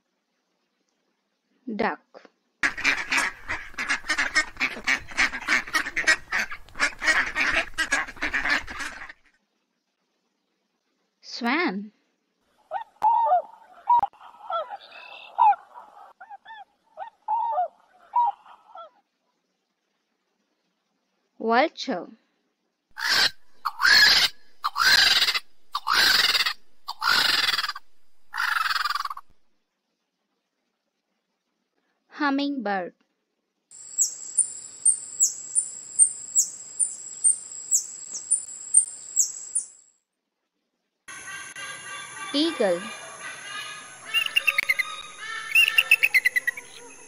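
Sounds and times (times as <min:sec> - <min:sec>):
vulture squawking: 0:02.6 - 0:09.2, 0:23.0 - 0:29.3, 0:41.1 - 0:47.0
ducks quacking: 0:02.6 - 0:09.3, 0:23.0 - 0:29.3, 0:41.1 - 0:47.0.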